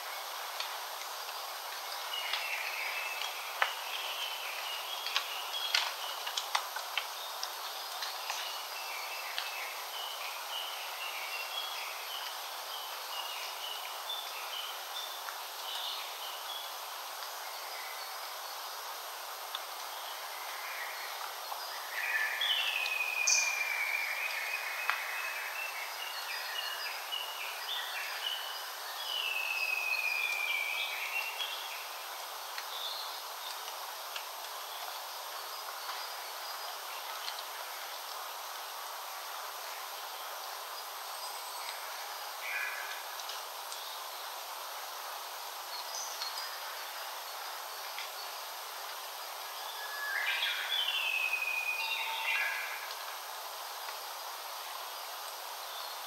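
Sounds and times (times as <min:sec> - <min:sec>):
steady background hiss: 0:00.0 - 0:56.0.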